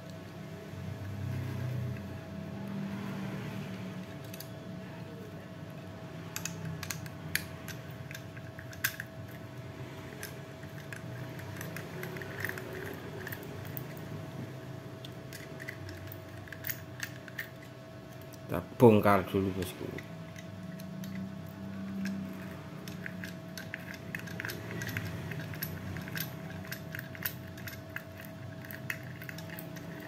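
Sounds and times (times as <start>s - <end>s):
steady low hum: 0.0s - 30.0s
screwdriver clicking against metal: 20.0s - 30.0s.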